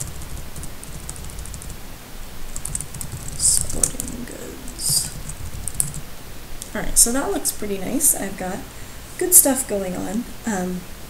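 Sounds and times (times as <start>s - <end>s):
computer keyboard typing: 0.0s - 1.8s, 2.6s - 6.1s.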